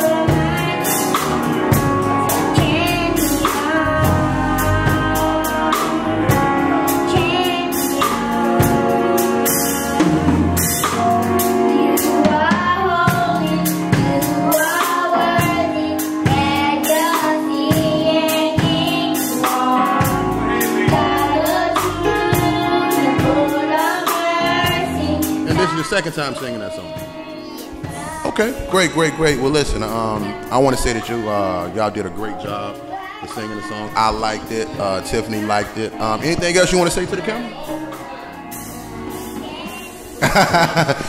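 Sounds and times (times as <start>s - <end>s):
steady drum beat: 0.0s - 12.3s
girls singing gospel song: 0.0s - 41.0s.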